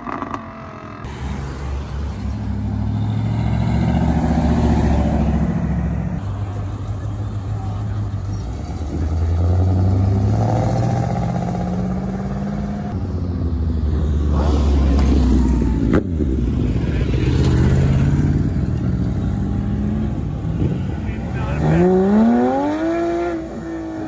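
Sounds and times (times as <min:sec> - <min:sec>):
sports car engine accelerating: 0:21.4 - 0:24.0.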